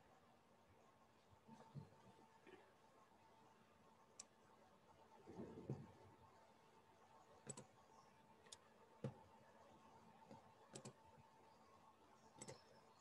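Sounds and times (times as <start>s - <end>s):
faint computer mouse clicks: 7.4s - 7.7s, 8.4s - 9.2s, 10.3s - 11.0s, 12.3s - 12.8s.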